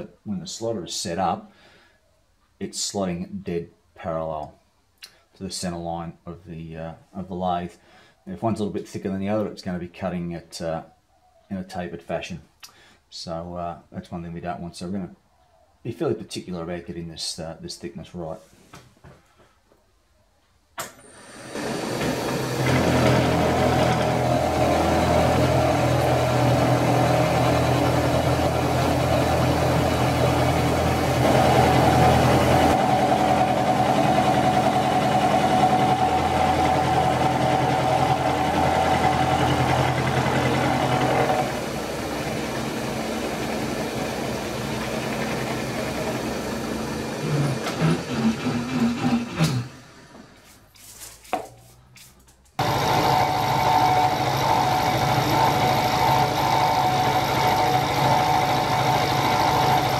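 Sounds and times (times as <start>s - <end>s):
milling machine cutting metal: 21.4s - 49.7s, 52.6s - 59.9s.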